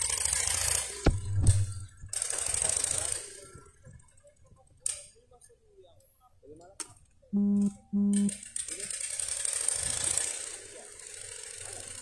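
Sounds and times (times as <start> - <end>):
short low beeps: 7.4 - 8.4.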